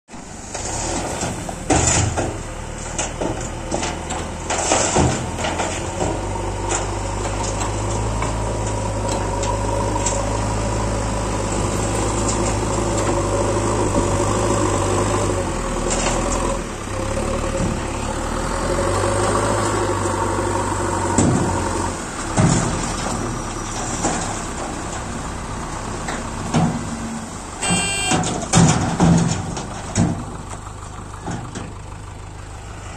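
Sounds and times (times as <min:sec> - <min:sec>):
diesel truck engine running: 0:00.1 - 0:32.9
hydraulic hoist whine: 0:27.6 - 0:28.2.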